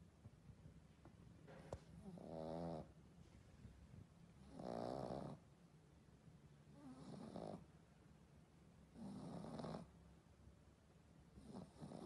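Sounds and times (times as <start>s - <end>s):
dog snoring faintly: 1.9s - 3.0s, 4.4s - 5.5s, 6.7s - 7.7s, 8.9s - 10.0s, 11.3s - 12.0s.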